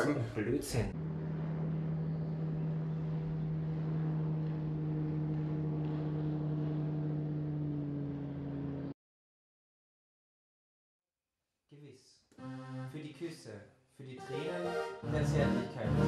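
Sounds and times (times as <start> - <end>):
higher engine tone: 0.8 - 9.0
motorboat engine drone: 0.9 - 9.0.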